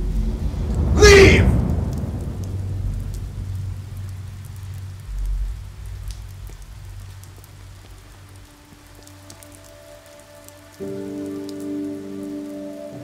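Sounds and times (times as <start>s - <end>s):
faint crackling hiss: 0.0s - 13.0s
low steady rumble: 1.6s - 8.1s.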